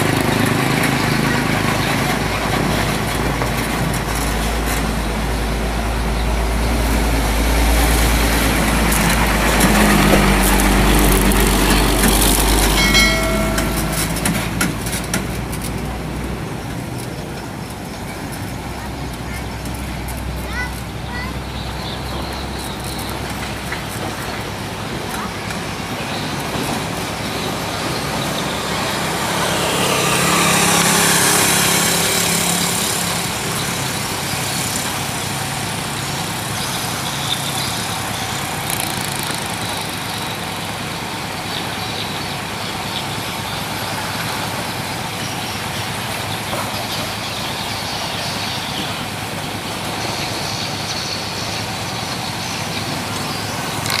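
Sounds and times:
heavy truck driving past: 0.0 - 38.7.

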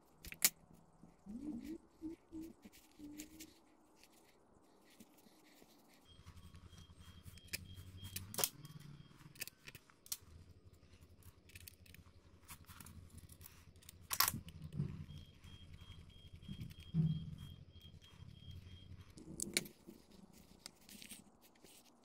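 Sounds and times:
low steady hum: 0.0 - 22.0.

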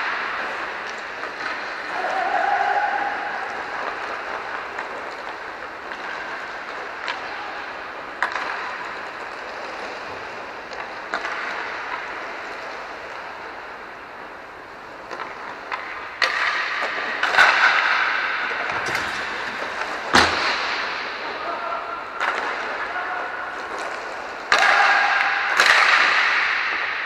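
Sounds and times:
sticks clacking on puck: 0.0 - 2.2, 3.4 - 13.4, 15.0 - 23.0, 23.6 - 27.0
skate wheels rolling: 0.0 - 27.0
puck hitting boards: 8.0 - 9.7, 10.6 - 12.6, 15.0 - 23.0, 23.6 - 27.0.

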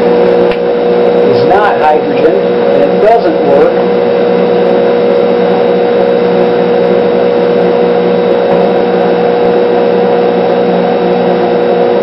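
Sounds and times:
battery charger electrical hum: 0.0 - 12.0.

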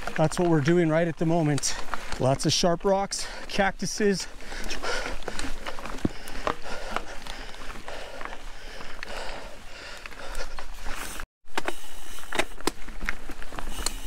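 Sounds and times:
bike clicks and knocks: 11.5 - 14.0.

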